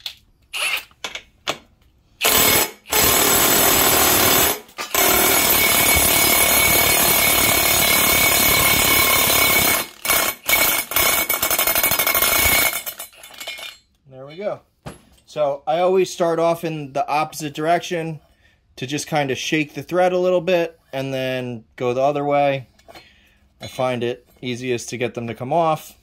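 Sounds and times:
impact wrench hammering: 1.0 - 13.6.

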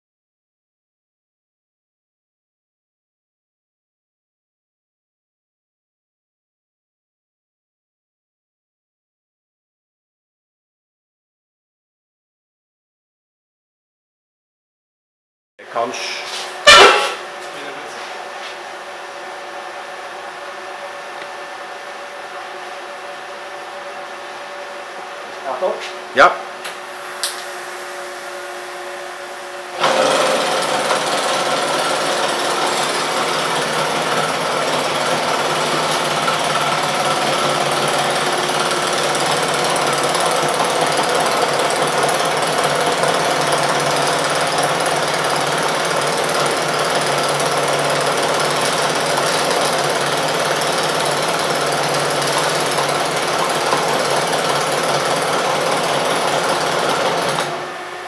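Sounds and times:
machine hum: 18.8 - 44.8
welding arc: 29.7 - 41.5.

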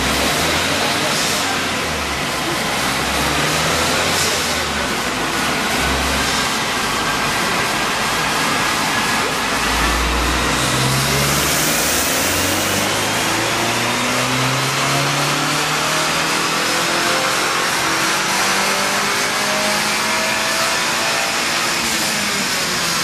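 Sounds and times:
car engine revving at full throttle: 0.0 - 23.0
turbo whine: 9.6 - 13.0.

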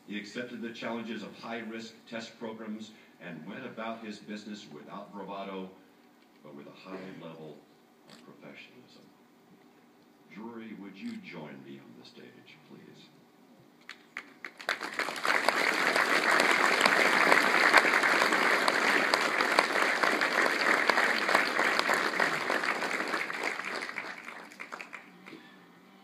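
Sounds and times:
audience applauding: 13.9 - 25.4.

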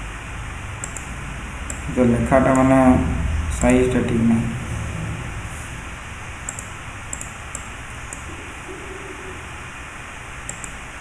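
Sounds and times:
computer mouse clicks: 0.8 - 1.1, 6.5 - 8.3, 10.4 - 10.8.

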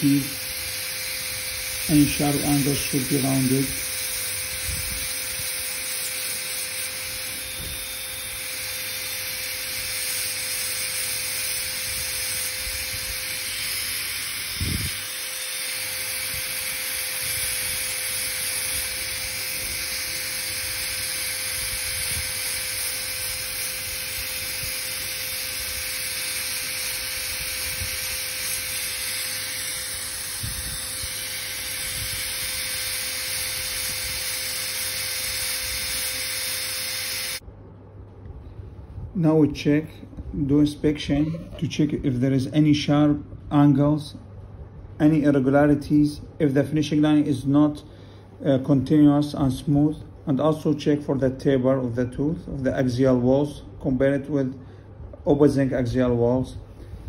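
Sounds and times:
dental drill high hiss: 0.0 - 37.4.

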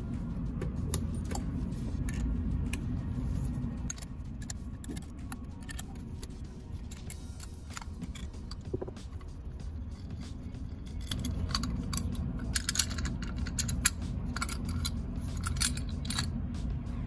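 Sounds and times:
steady low hum: 0.0 - 17.0
metal parts clinking: 0.9 - 2.8, 3.8 - 8.7, 9.9 - 16.3.

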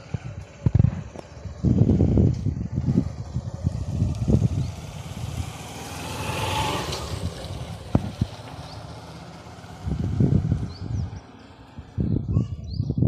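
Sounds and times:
low rumbling thumps: 0.0 - 5.6, 7.0 - 9.0, 9.7 - 12.4
motor vehicle passing by: 0.0 - 12.4.

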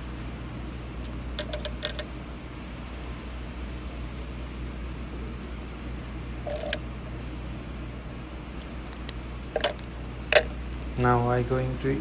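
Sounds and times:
steady low hum: 0.0 - 12.0
clicks and knocks of fan motor: 0.8 - 2.2, 8.5 - 11.0.

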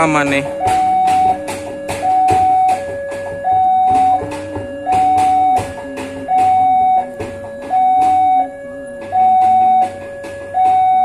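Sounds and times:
sharp knocks: 0.0 - 11.0.

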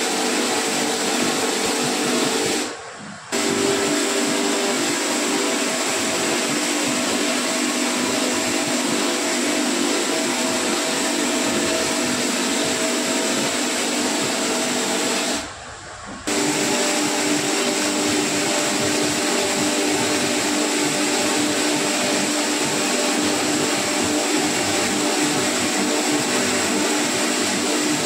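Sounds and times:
buffing machine humming with hiss: 0.0 - 15.5, 16.3 - 28.0.

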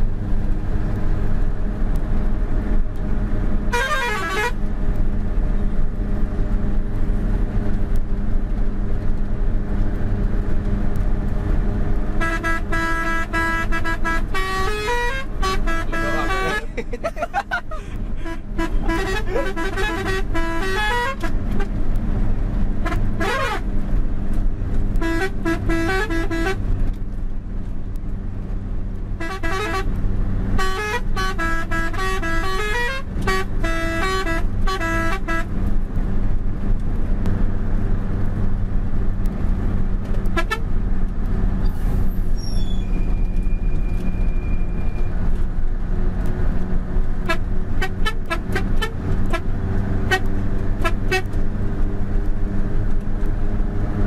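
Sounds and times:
diesel truck engine running: 0.0 - 54.0
horn tooting: 3.7 - 4.6, 12.2 - 21.7, 22.8 - 23.6, 25.0 - 26.6, 29.2 - 30.0, 30.6 - 35.5, 40.3 - 40.6, 47.2 - 51.4.

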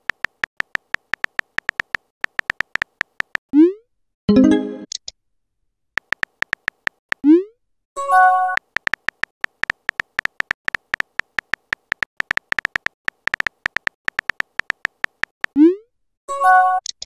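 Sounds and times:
phone keyboard clicks: 0.0 - 3.4, 6.0 - 7.2, 8.5 - 15.6.

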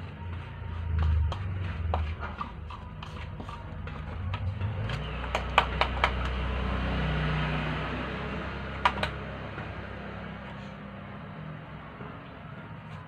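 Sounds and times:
sharp hand claps: 5.3 - 6.4.

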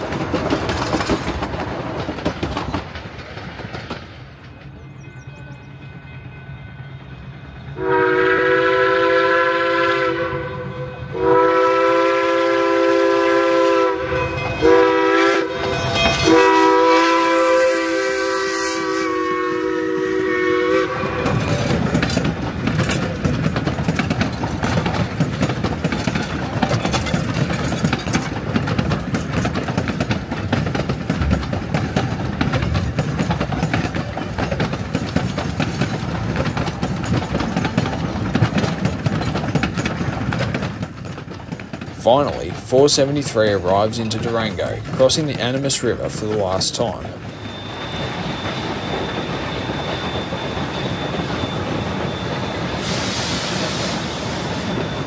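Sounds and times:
train rumble and wheel clatter: 0.0 - 55.0
steam whistle blasts: 7.8 - 21.4, 47.3 - 55.0.

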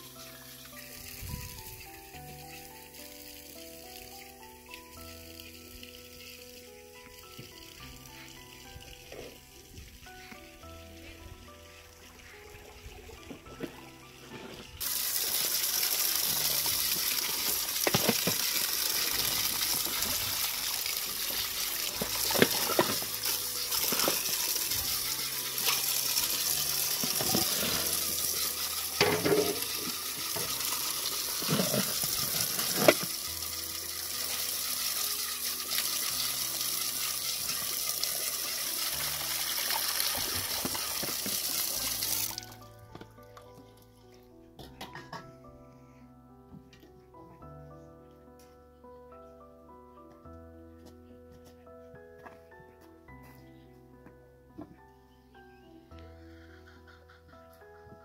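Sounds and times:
water splashing into steel bowl: 14.8 - 33.2.

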